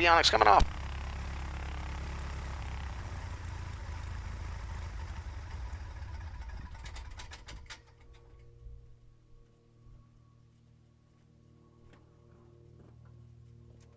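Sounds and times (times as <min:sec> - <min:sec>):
light aircraft engine idling: 0:00.0 - 0:13.9
engine pops as propeller stops: 0:00.4 - 0:08.4.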